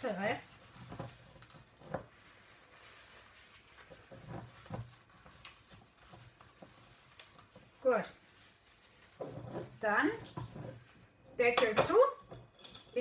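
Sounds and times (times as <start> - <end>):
paper towel wiping a glass jar: 0.0 - 11.2.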